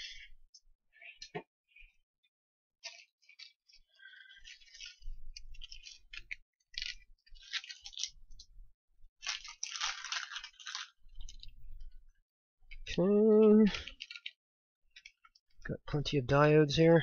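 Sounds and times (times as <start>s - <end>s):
packet crinkling and rustling: 2.8s - 12.9s, 13.5s - 15.4s.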